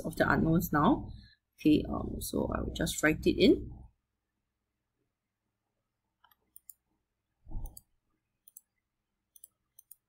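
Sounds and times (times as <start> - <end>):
computer mouse clicks: 6.2 - 6.8, 7.5 - 10.0.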